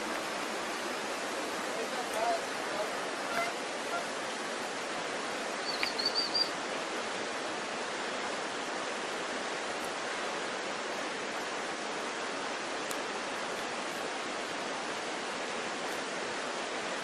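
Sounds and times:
water rushing: 0:00.0 - 0:17.0
high chirps: 0:05.6 - 0:06.5.

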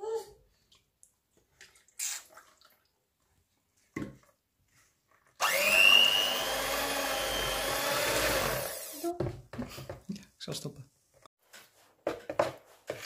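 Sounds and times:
electric hand mixer whining: 0:05.4 - 0:09.1.

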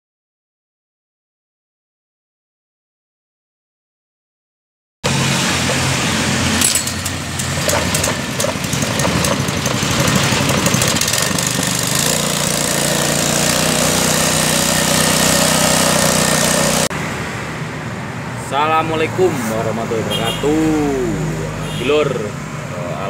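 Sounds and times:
street noise: 0:05.0 - 0:23.0
water pump engine running: 0:05.1 - 0:16.9.

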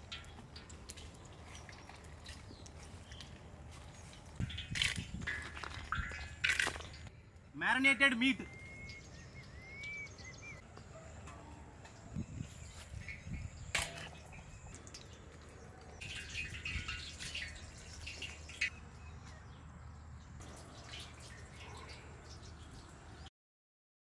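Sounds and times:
wet crackling: 0:00.0 - 0:07.4, 0:12.8 - 0:18.7.

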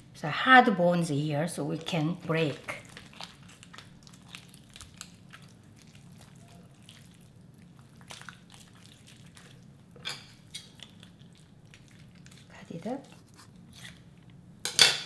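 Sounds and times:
wet squelching of raw chicken: 0:02.6 - 0:09.7.

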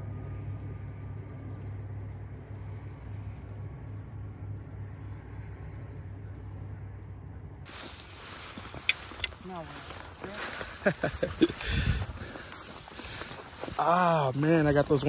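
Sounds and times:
low hum or rumble: 0:00.0 - 0:08.7.

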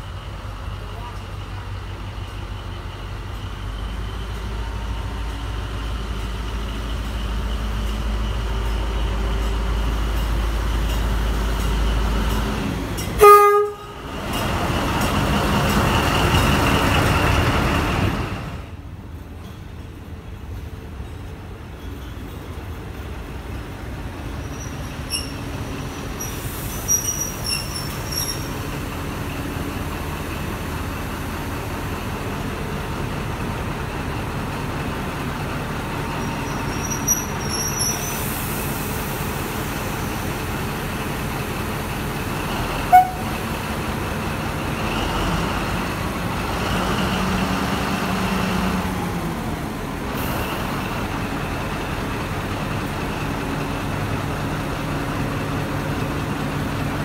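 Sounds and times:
diesel locomotive engine running: 0:00.0 - 0:57.0
high squeaks and clicks: 0:24.5 - 0:25.6, 0:26.2 - 0:28.6.

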